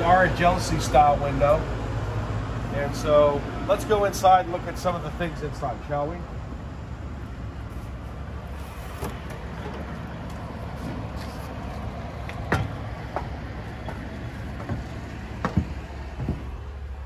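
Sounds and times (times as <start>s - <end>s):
low outdoor rumble: 0.0s - 17.0s
footsteps on steps: 10.3s - 16.8s
sharp knocks: 12.4s - 16.6s.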